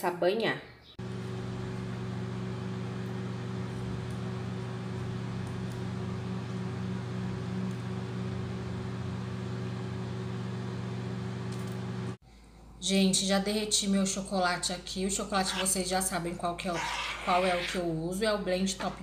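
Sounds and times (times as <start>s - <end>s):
appliance motor humming: 1.0s - 12.2s.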